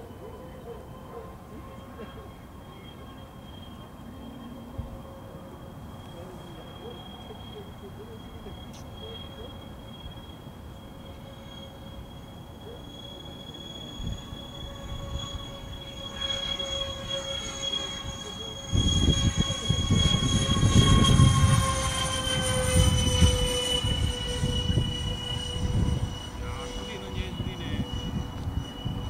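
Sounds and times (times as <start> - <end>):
jet engines high whine: 0.0 - 29.0
deep jet rumble: 14.0 - 29.0.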